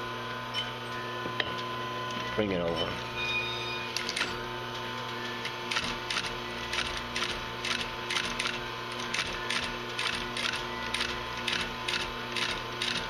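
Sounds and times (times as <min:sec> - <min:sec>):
sewing machine clacking: 0:05.7 - 0:13.0
sewing machine hum: 0:05.7 - 0:13.0.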